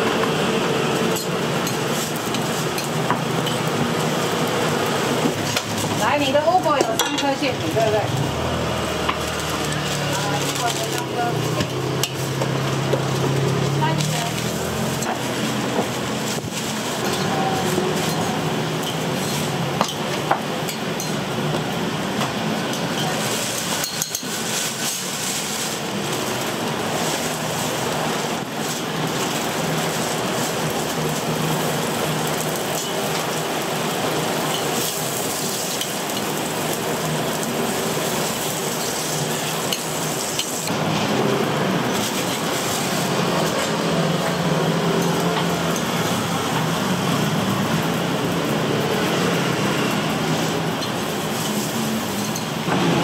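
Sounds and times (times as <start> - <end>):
oil sizzling on griddle: 0.0 - 53.0
metal utensils clinking: 5.3 - 8.1, 9.0 - 21.4, 22.4 - 40.7, 49.6 - 52.8.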